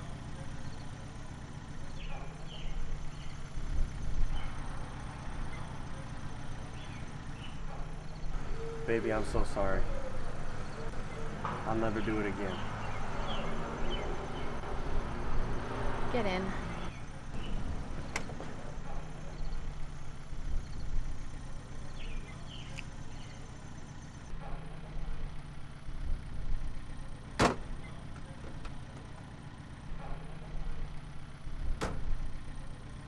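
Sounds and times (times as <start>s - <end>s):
car engine idling: 0.0s - 33.0s
car door shutting: 27.4s - 27.7s, 31.7s - 32.1s.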